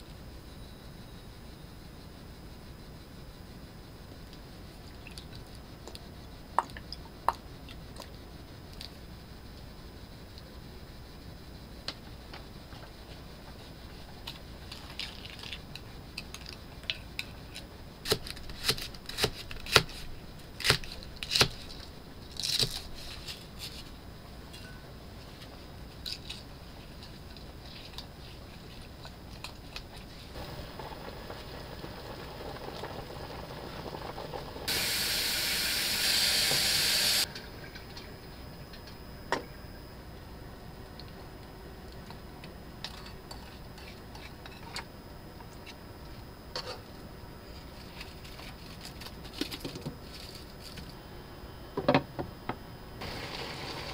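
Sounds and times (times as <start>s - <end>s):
loud steady hiss: 30.0s - 41.8s, 52.7s - 53.9s.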